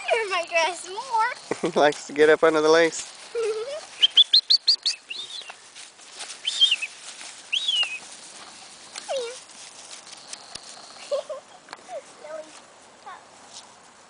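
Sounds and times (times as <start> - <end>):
puppy whining: 9.0 - 9.4.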